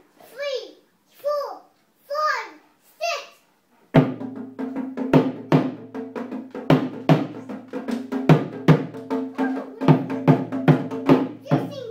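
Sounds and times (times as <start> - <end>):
barrel drum beaten: 3.9 - 11.9.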